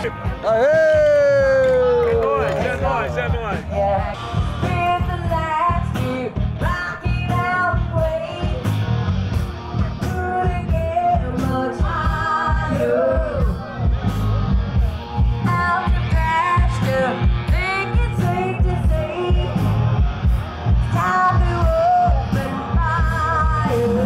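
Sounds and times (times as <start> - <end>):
guitar: 0.0 - 24.0
rock and roll band playing: 0.0 - 24.0
steady drum beat: 0.0 - 24.0
person singing: 9.9 - 13.7, 20.9 - 24.0.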